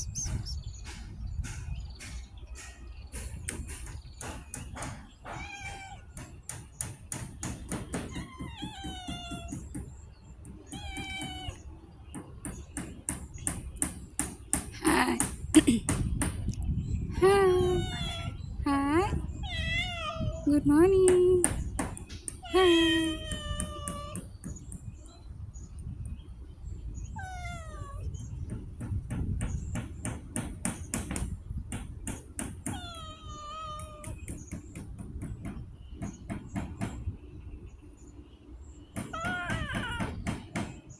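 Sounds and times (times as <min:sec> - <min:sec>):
cat meowing: 0:05.3 - 0:06.1, 0:10.7 - 0:11.6, 0:17.6 - 0:18.4, 0:19.4 - 0:20.5, 0:22.7 - 0:24.2, 0:27.2 - 0:28.1, 0:32.7 - 0:34.2, 0:39.1 - 0:40.2.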